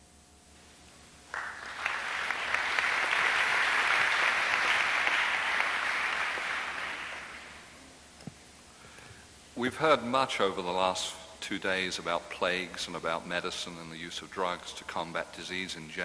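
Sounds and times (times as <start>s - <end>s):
audience applauding: 1.3s - 7.7s.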